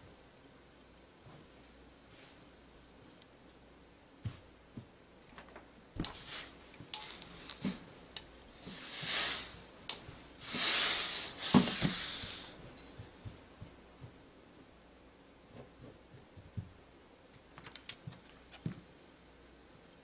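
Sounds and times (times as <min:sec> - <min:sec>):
steam iron hissing steam: 0:06.0 - 0:07.9, 0:08.5 - 0:09.7, 0:10.4 - 0:12.6.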